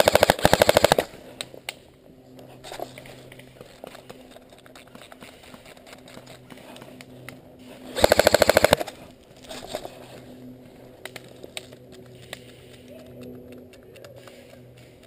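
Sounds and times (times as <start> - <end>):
airsoft rifle full-auto burst: 0.0 - 1.1, 8.0 - 8.9.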